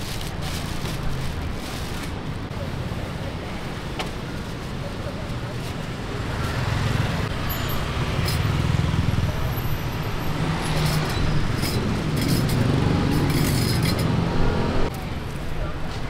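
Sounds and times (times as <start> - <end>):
traffic rumble: 0.0 - 16.0.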